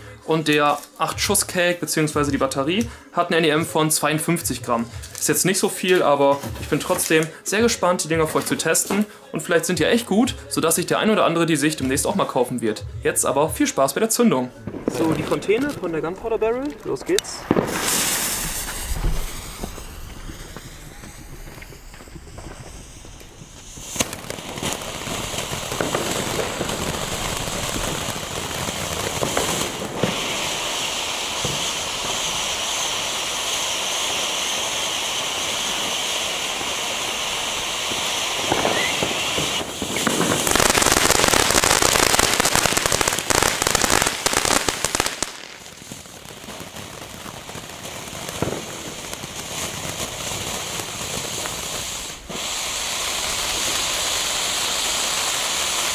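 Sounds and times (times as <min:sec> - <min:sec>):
firework fountain hissing and crackling: 0:00.0 - 0:55.9.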